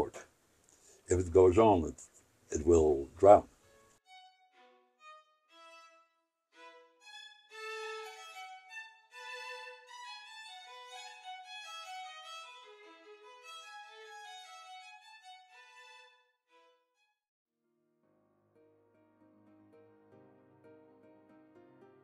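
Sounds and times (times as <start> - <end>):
violin playing a melody: 3.5 - 17.1.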